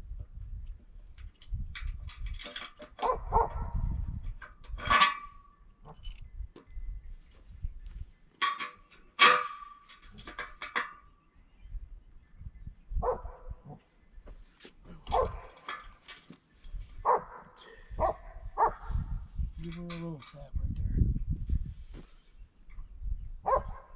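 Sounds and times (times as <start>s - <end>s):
dog barking: 3.0s - 3.8s, 13.0s - 13.5s, 15.1s - 15.4s, 17.0s - 19.0s, 23.4s - 23.9s.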